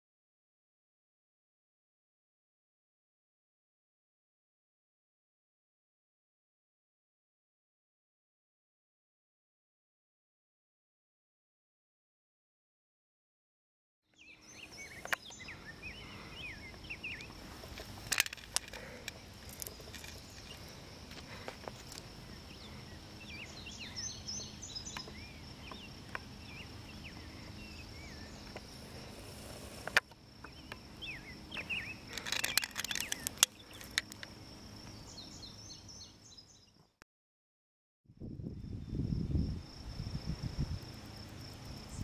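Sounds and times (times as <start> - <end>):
bird chirps: 14.1 - 17.4, 22.3 - 28.6, 30.4 - 34.2, 34.9 - 36.9
sharp clicks: 31.6 - 34.3.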